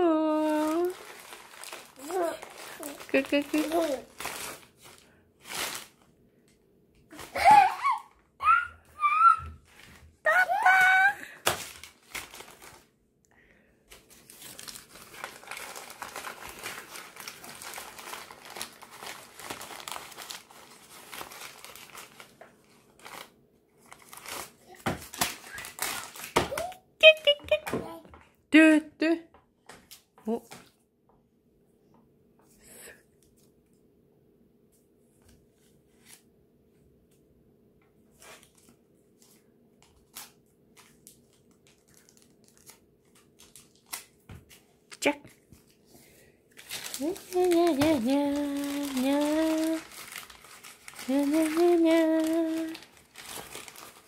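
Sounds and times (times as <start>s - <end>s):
paper crinkling: 0.4s - 6.1s, 9.7s - 12.9s, 13.9s - 26.7s, 38.2s - 45.8s, 46.5s - 54.0s.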